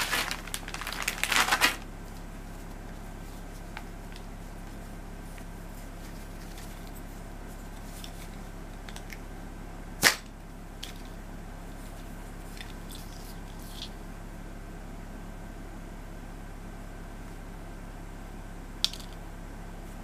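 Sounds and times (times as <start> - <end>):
slingshot rubber snapping: 10.0 - 10.3.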